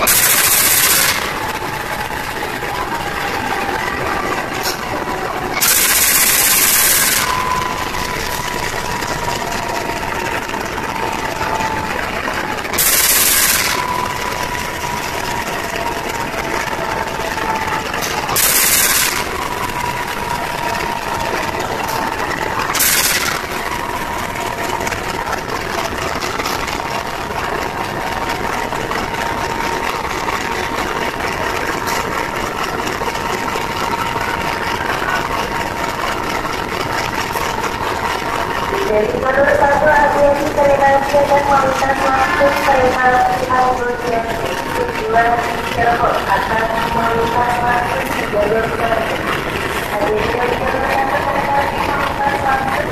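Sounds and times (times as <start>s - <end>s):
loud hissing bursts: 0.0s - 2.4s, 5.4s - 9.1s, 12.7s - 15.4s, 17.5s - 25.2s
high whine: 0.0s - 52.9s
locomotive engine idling: 0.0s - 52.9s.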